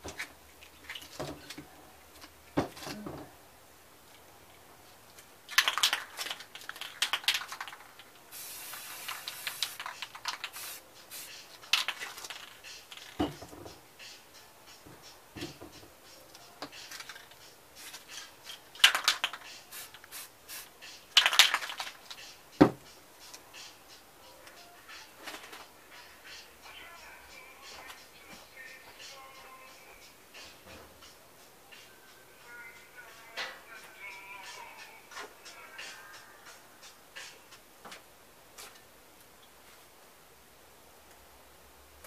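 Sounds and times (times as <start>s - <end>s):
spray paint hissing: 8.3s - 13.0s, 17.8s - 22.3s
spray cans clattering on table: 8.7s - 13.7s, 18.0s - 19.5s, 21.2s - 22.0s.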